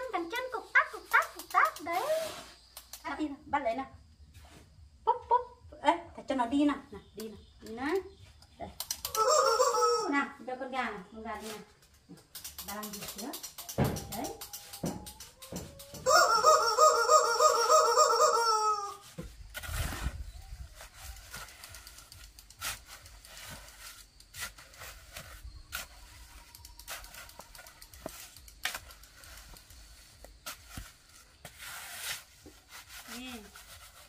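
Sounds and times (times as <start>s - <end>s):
chicken squawking: 9.1s - 10.1s, 16.0s - 19.0s
shovel scraping wet mortar: 19.5s - 34.0s.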